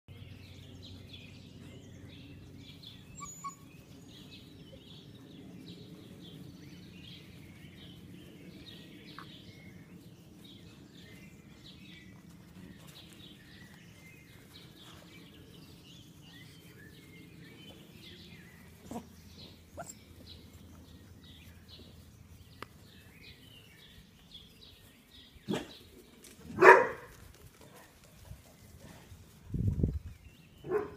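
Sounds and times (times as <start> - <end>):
puppies playing: 0.4 - 26.4
puppy barks: 26.6 - 27.1, 30.7 - 30.9.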